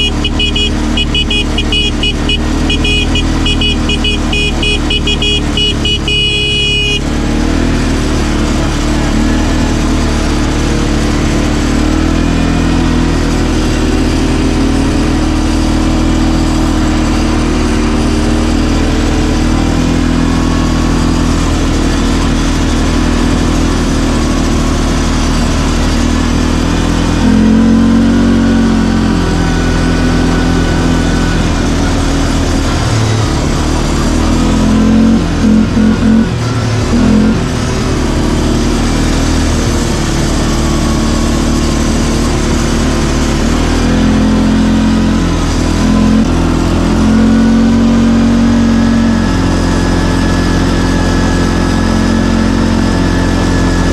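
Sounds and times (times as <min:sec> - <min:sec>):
fast-pulsing high beep: 0:00.0 - 0:07.0
atv engine running: 0:00.0 - 0:53.9.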